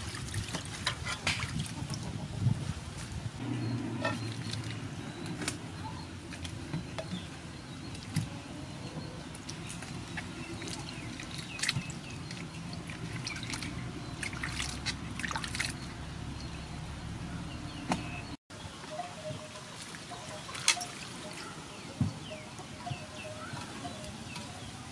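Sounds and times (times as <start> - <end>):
water splashing in metal basin: 9.3 - 15.9.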